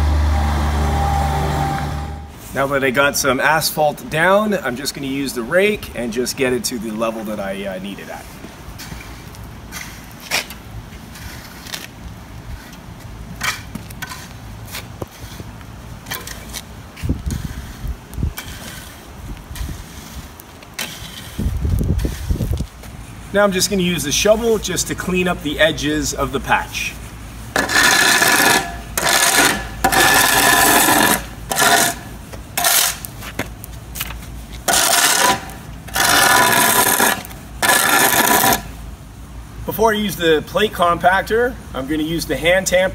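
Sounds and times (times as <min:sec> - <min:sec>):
low steady rumble: 0:00.0 - 0:02.5
rake scraping through asphalt: 0:00.0 - 0:38.8.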